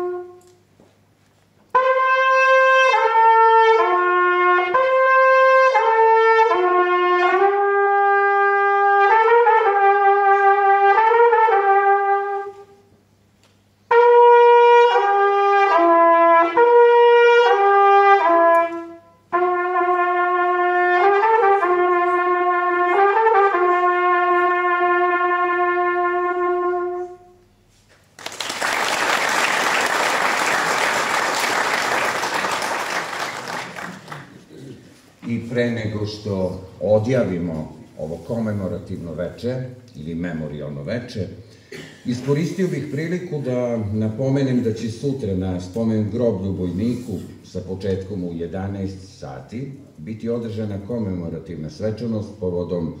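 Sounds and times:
solo trumpet slow melody: 0:00.0 - 0:00.7, 0:01.6 - 0:12.9, 0:13.8 - 0:27.9
audience applauding: 0:28.1 - 0:34.6.

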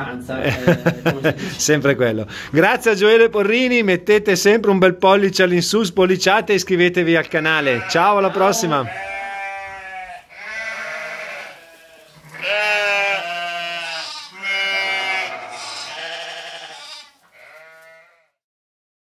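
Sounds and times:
animal bleating: 0:07.1 - 0:18.4.

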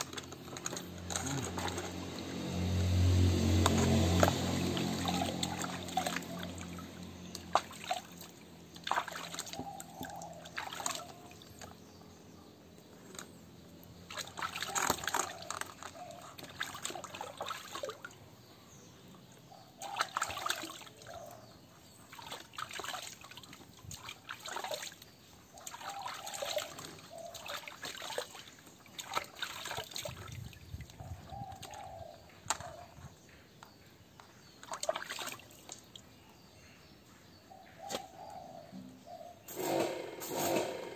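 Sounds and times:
water splashing in a basin: 0:00.0 - 0:11.9, 0:13.9 - 0:18.4, 0:19.4 - 0:32.8, 0:34.4 - 0:36.2.

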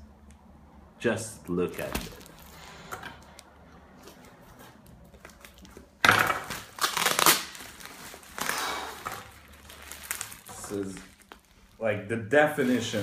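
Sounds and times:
plastic bag crinkling: 0:01.8 - 0:02.8, 0:06.5 - 0:11.8.

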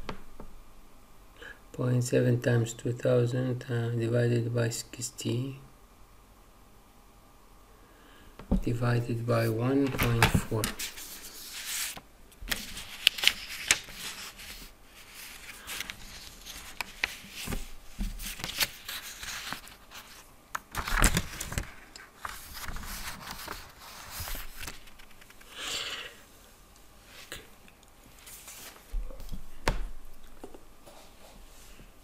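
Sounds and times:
rustling scrapes: 0:10.7 - 0:20.3, 0:21.3 - 0:25.5, 0:28.2 - 0:28.9.

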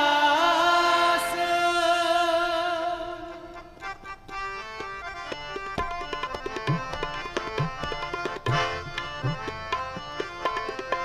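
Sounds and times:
harmoniums playing melody: 0:00.0 - 0:11.0
tabla drumming: 0:04.7 - 0:11.0.

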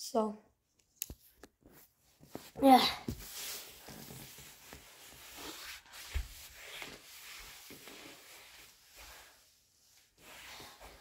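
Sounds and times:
paper towel rubbing on floor: 0:02.3 - 0:11.0.

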